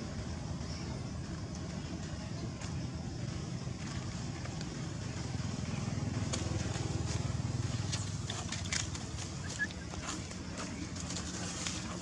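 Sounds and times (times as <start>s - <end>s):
dry leaves rustling and crackling: 6.6s - 12.0s.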